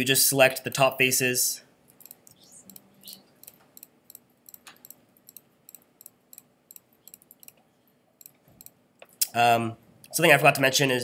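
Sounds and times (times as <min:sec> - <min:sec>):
computer mouse clicks: 0:01.9 - 0:07.6, 0:08.2 - 0:09.2.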